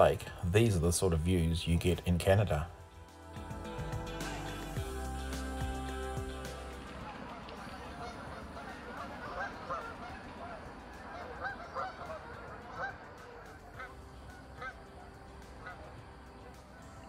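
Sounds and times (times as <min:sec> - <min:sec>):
geese honking: 0:06.5 - 0:17.0.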